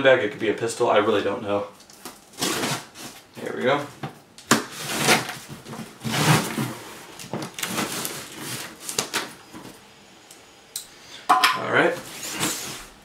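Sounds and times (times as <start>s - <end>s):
tape and cardboard crackling: 1.8s - 9.8s
blade scraping packing tape: 2.0s - 3.2s, 4.5s - 9.3s.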